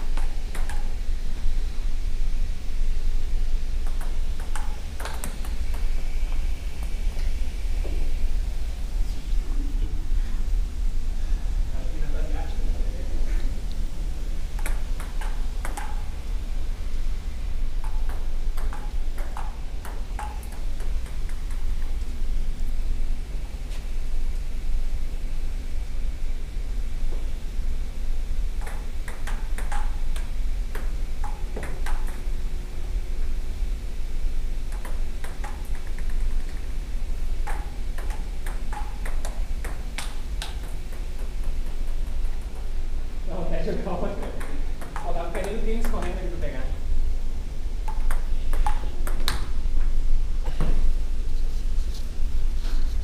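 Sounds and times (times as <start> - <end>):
ping-pong ball clicking: 0.0 - 1.0, 3.8 - 6.0, 14.6 - 16.2, 17.8 - 21.9, 28.6 - 32.3, 34.7 - 36.6, 37.4 - 42.7, 44.4 - 46.2, 47.8 - 49.5
steady low rumble: 0.0 - 31.6.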